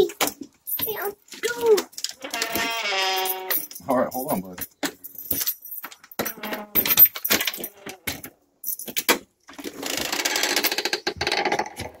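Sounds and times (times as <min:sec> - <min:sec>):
doorknob and latch rattling: 0:04.8 - 0:09.3.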